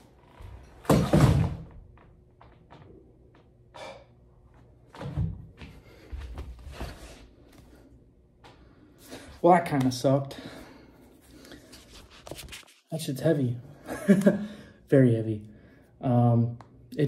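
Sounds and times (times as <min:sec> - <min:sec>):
footsteps on the floor: 0:04.5 - 0:07.7.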